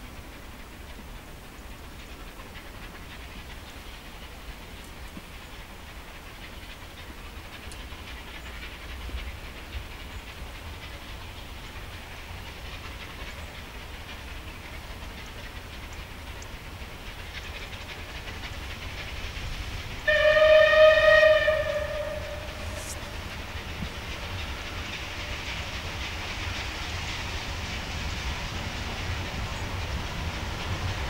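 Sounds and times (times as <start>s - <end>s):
steam locomotive running: 0.0s - 31.0s
steam locomotive whistle: 20.0s - 23.3s.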